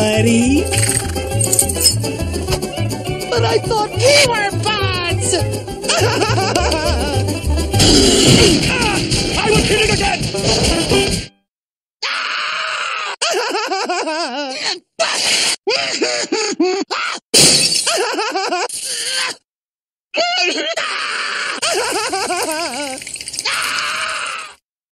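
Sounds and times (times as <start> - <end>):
cartoon laughter: 5.8 - 7.4, 13.2 - 14.8, 17.9 - 19.2, 21.6 - 23.0
crash and shatter effect: 7.7 - 11.3
cartoon screams and wails: 7.8 - 9.7, 12.0 - 13.5, 16.8 - 17.2, 18.9 - 19.4, 20.1 - 24.6.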